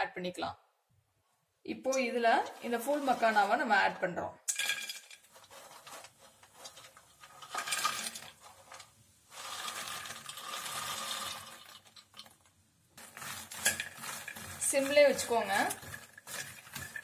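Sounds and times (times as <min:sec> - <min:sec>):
seeds pattering onto metal pan: 0:04.5 - 0:17.0.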